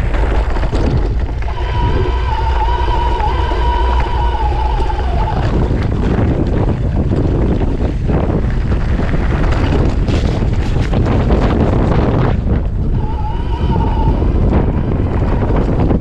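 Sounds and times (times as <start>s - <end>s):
bike rattling over gravel: 0.0s - 13.2s, 14.5s - 16.0s
gusting wind buffeting microphone: 0.0s - 16.0s
high-pitched whine: 0.8s - 6.2s, 12.9s - 15.1s.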